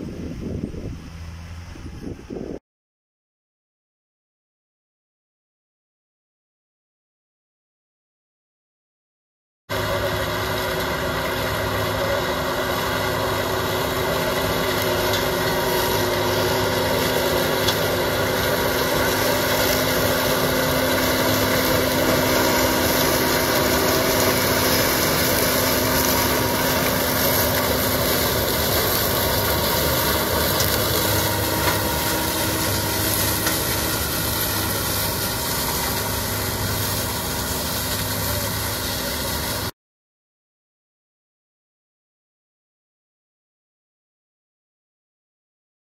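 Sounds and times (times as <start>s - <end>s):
tractor diesel engine under load: 9.7s - 39.7s.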